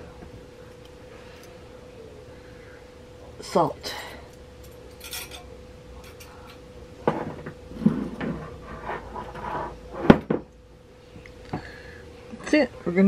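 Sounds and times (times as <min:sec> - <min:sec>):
faint steady hum: 0:00.0 - 0:13.0
utensils knocking and clinking: 0:04.6 - 0:06.3.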